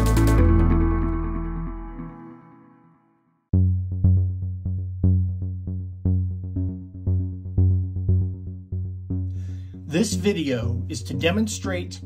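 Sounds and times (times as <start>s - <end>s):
low bass: 0.0s - 2.2s, 3.5s - 12.0s
synthesizer chord: 0.0s - 11.4s
synthesizer plucked notes: 0.0s - 12.0s.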